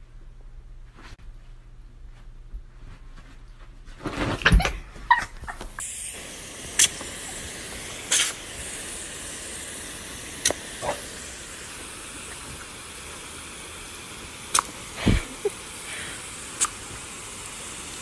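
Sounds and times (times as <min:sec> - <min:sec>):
hose nozzle spraying water: 0:05.8 - 0:18.0.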